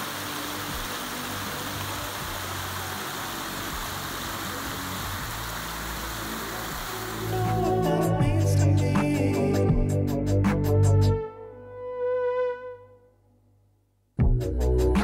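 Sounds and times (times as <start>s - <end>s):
stream rushing over rocks: 0.0s - 8.2s.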